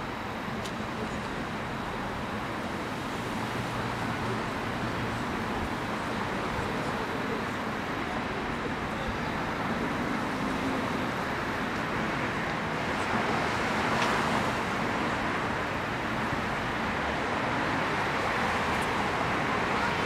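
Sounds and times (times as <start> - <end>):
street ambience hiss: 0.0 - 20.0.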